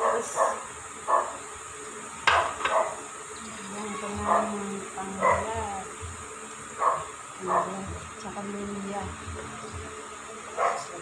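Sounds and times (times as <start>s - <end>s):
dog barking: 0.0s - 1.4s, 2.4s - 3.0s, 5.2s - 5.5s, 6.8s - 7.8s, 10.6s - 10.9s.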